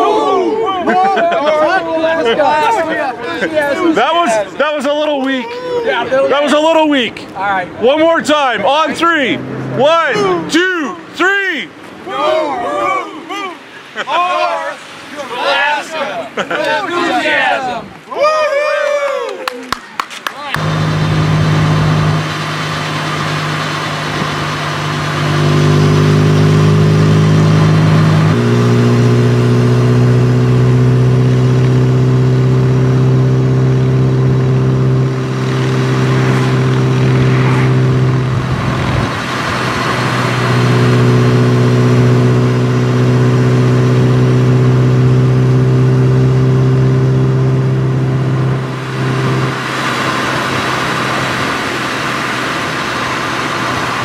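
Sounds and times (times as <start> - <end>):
wind and road noise: 0.0 - 18.4, 20.0 - 54.0
motorcycle engine running: 20.6 - 51.8.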